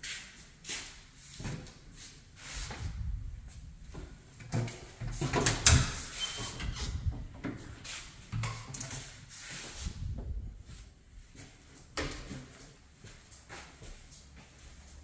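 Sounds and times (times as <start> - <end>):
footsteps on tiled floor: 10.6 - 15.0.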